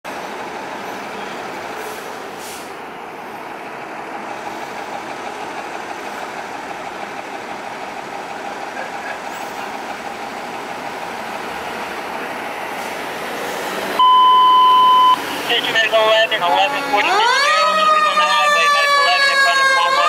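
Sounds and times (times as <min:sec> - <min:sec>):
diesel engine idling: 0:00.1 - 0:20.0.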